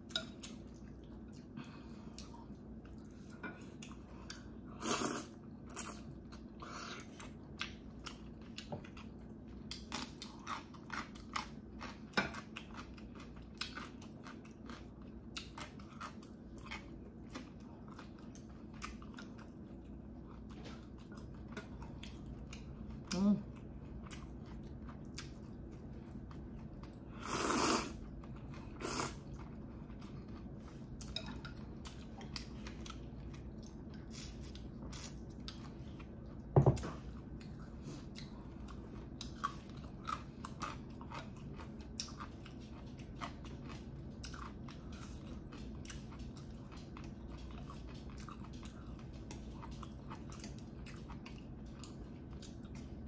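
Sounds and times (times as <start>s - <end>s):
chewing and wet mouth clicks: 37.4s - 53.0s.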